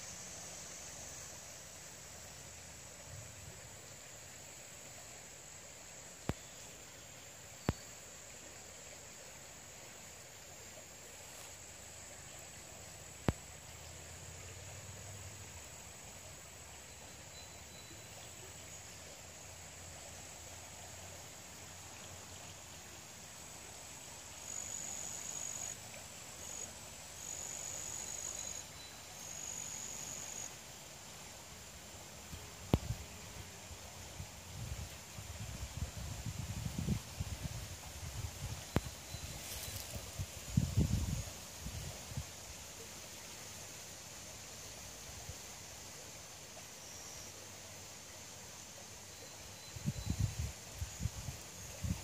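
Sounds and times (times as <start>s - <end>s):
insects droning: 0.0s - 52.0s.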